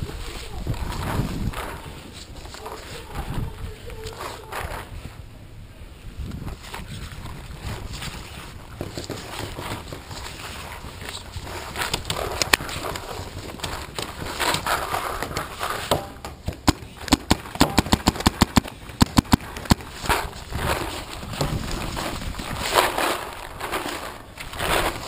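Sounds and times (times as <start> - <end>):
rustling in dry grass and leaves: 0.0 - 25.0
paintball marker shots: 15.9 - 19.9.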